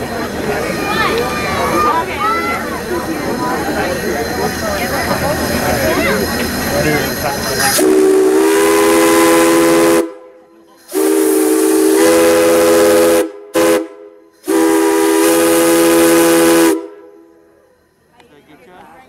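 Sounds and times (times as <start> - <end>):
steam locomotive whistle chord: 7.8 - 18.0.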